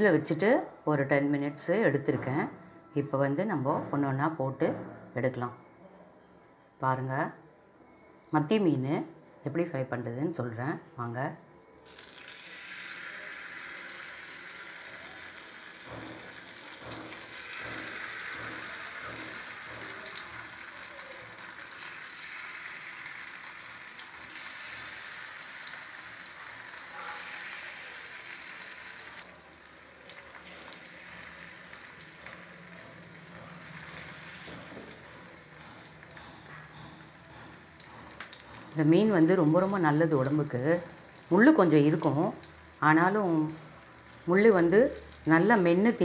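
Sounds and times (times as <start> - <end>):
fish sizzling in oil: 11.8 - 38.5.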